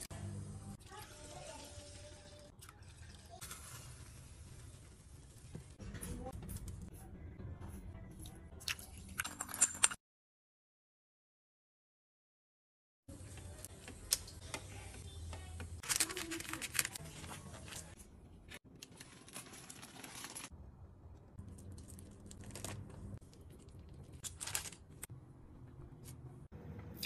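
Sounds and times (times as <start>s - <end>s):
rice being mixed in a pot: 1.0s - 5.8s
plastic cling film crinkling: 15.8s - 18.0s, 18.7s - 20.5s, 21.7s - 25.1s.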